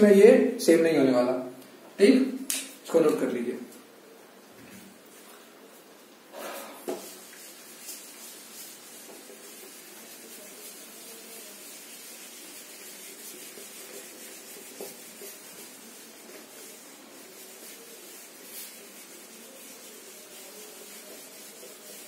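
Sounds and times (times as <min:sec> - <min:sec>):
steady background hiss: 0:00.0 - 0:22.0
eraser rubbing whiteboard: 0:06.4 - 0:22.0.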